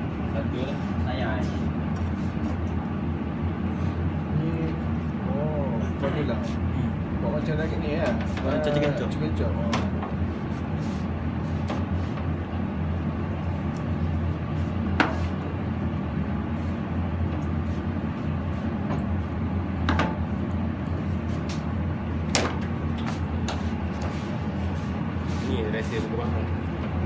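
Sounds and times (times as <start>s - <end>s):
low background hum: 0.0s - 27.0s.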